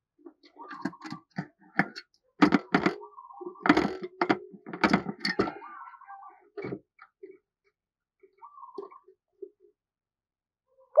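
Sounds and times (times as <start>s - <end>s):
dove's feet tapping cage: 0.4s - 5.7s.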